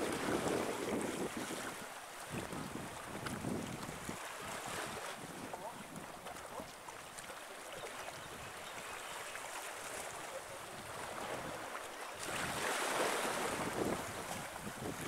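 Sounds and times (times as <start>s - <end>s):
wind buffeting microphone: 0.0s - 6.1s, 13.3s - 15.0s
small waves washing on rocks: 0.0s - 8.2s, 9.3s - 15.0s.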